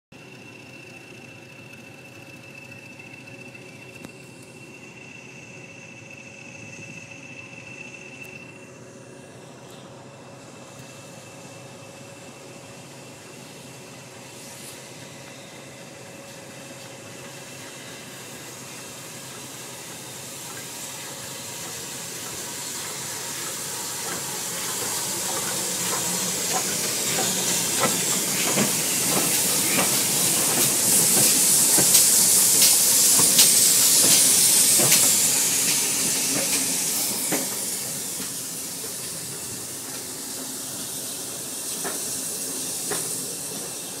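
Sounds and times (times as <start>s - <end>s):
steam hissing: 0.2s - 44.0s
train wheels clicking and knocking: 18.2s - 44.0s.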